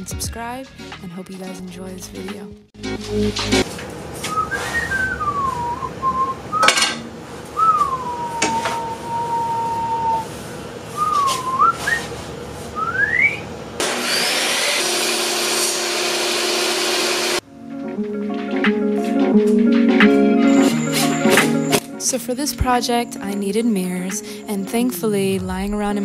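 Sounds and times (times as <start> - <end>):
person whistling a tune: 4.3 - 6.8, 7.6 - 10.3, 11.0 - 12.1, 12.8 - 13.4
saw blade cutting wood: 13.8 - 17.4
table saw running: 13.8 - 17.4.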